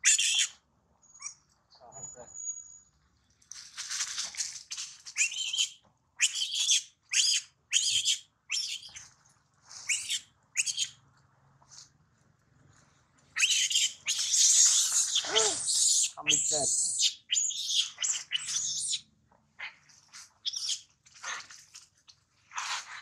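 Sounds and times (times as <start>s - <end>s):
young monkey screaming: 0.0s - 0.5s, 5.2s - 9.0s, 13.4s - 19.0s
young monkey squealing cries: 0.0s - 0.5s, 5.2s - 9.0s, 9.9s - 10.9s, 13.4s - 19.0s, 20.4s - 21.4s.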